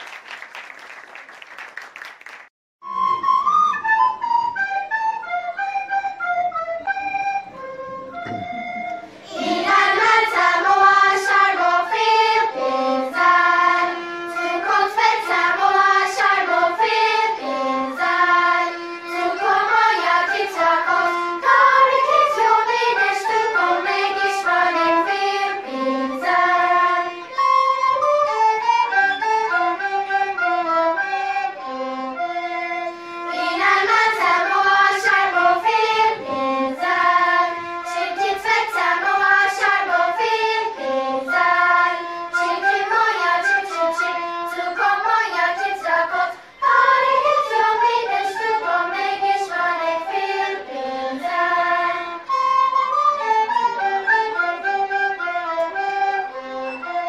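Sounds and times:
recorders playing melody: 0:02.8 - 0:57.0
violin playing: 0:07.4 - 0:57.0
children's choir singing: 0:09.0 - 0:57.0.

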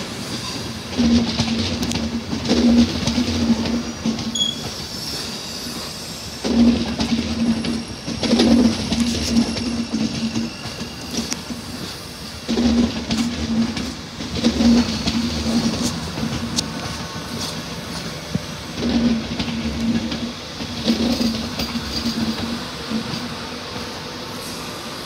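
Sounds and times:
low train hum: 0:00.0 - 0:25.0
train wheels clicking on rails: 0:00.0 - 0:25.0.

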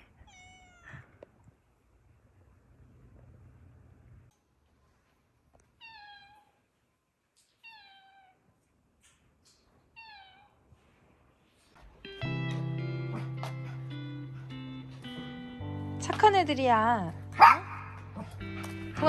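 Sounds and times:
cat meowing: 0:00.1 - 0:01.2, 0:05.8 - 0:06.6, 0:07.6 - 0:08.4, 0:10.0 - 0:10.6
acoustic guitar music: 0:12.0 - 0:19.0.

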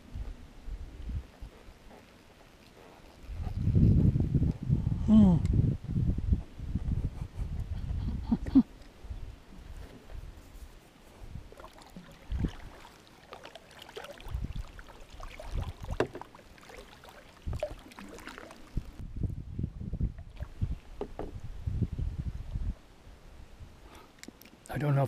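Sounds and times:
knocks and clatter in canoe: 0:11.5 - 0:19.0, 0:20.9 - 0:21.4.

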